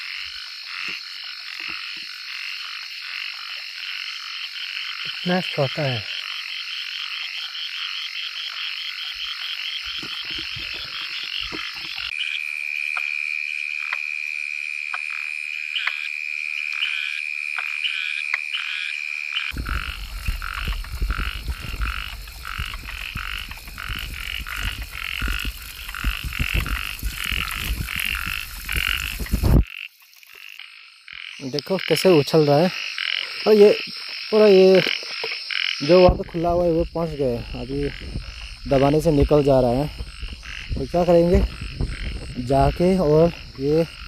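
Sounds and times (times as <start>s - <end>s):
frogs croaking: 0.0s - 44.0s
low rumbling noise: 19.5s - 29.6s.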